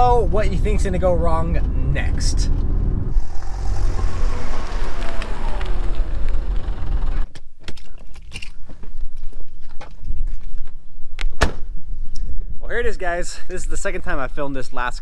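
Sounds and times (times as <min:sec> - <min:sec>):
car engine running: 0:00.0 - 0:07.3.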